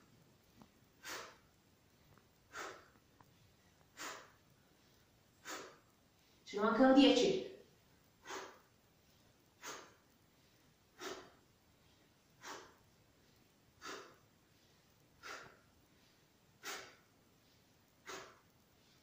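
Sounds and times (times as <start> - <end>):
woman breathing out sharply: 1.0 - 1.4, 2.5 - 2.9, 4.0 - 4.4, 5.4 - 5.8, 8.2 - 8.6, 9.6 - 10.0, 11.0 - 11.4, 12.4 - 12.8, 13.8 - 14.2, 15.2 - 15.6, 16.6 - 17.0, 18.0 - 18.5.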